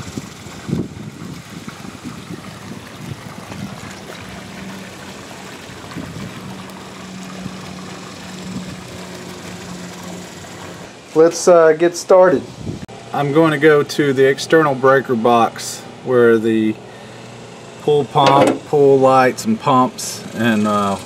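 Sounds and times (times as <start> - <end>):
trickling water: 0.0 - 11.3
light bumps: 18.2 - 18.7.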